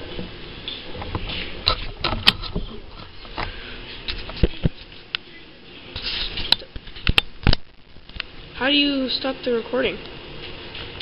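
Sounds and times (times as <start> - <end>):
sharp clicks and knocks: 0.2 - 3.5, 6.5 - 8.3.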